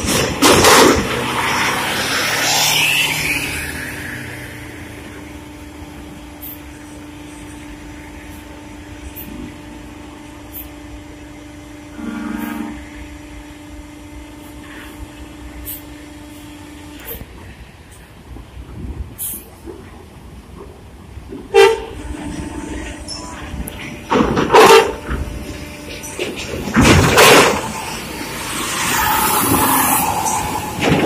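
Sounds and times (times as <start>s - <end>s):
vehicle engine hum: 0.0s - 31.0s
short tone: 11.9s - 12.8s.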